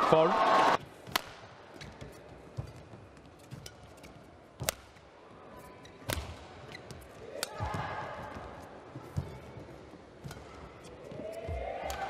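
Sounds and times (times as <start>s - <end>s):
racket hitting shuttlecock: 1.0s - 2.8s, 3.4s - 5.0s, 6.0s - 8.0s, 10.2s - 11.2s.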